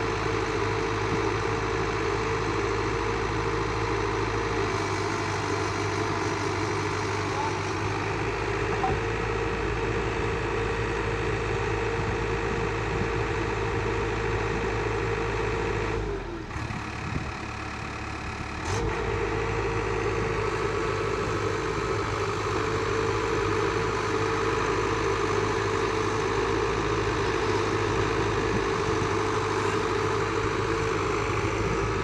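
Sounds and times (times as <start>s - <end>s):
excavator diesel engine running: 0.0s - 32.0s
constant humming tone: 7.2s - 9.2s.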